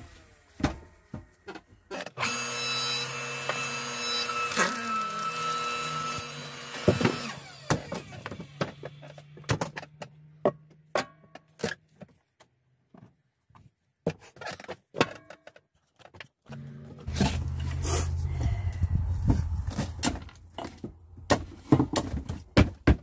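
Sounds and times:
steady mechanical hum: 0:16.5 - 0:21.9.

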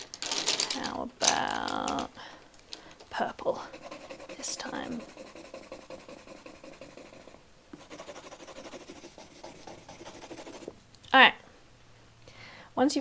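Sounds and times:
pencil scribbling on paper: 0:03.6 - 0:10.7.

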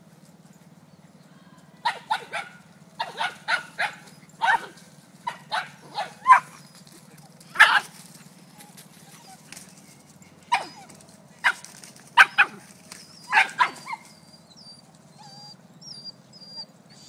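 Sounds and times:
dog barking: 0:01.8 - 0:06.6, 0:07.6 - 0:07.9, 0:11.4 - 0:12.6, 0:13.3 - 0:14.0.

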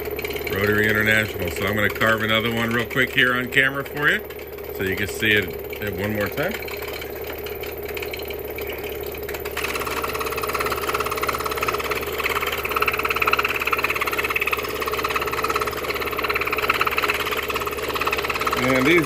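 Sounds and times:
scroll saw running: 0:00.0 - 0:19.0
saw blade cutting plywood: 0:09.4 - 0:19.0.

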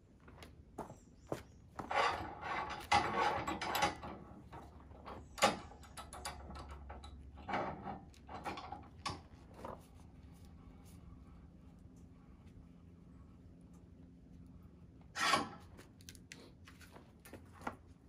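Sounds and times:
metal and wood knocks and clanks: 0:01.8 - 0:09.3.

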